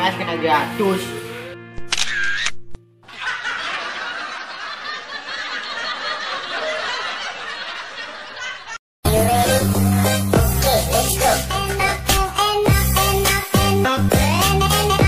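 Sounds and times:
music: 0:00.0 - 0:02.0, 0:09.1 - 0:15.0
laugh track: 0:03.0 - 0:11.7.

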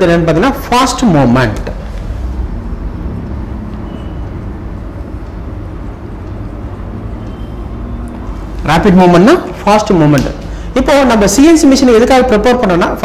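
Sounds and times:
marker squeaking on whiteboard: 0:03.7 - 0:04.5, 0:07.0 - 0:08.5.

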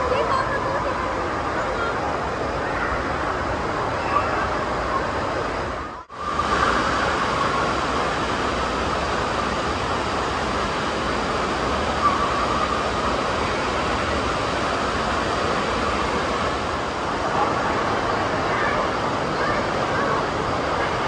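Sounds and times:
rushing water: 0:00.0 - 0:21.0.

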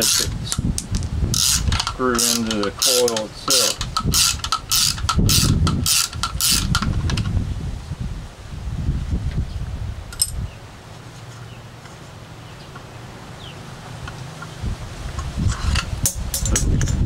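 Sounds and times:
small parts rattling: 0:00.0 - 0:07.3.

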